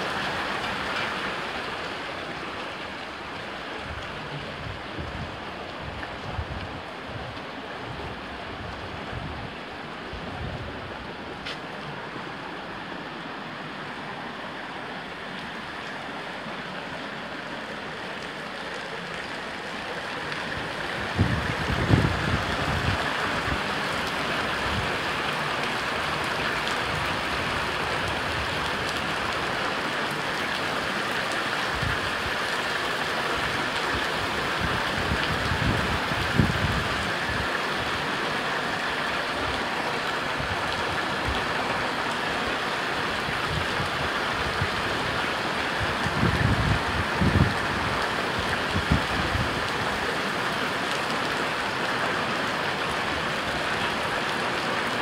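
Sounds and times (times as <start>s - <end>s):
floodwater rushing: 0.0s - 55.0s.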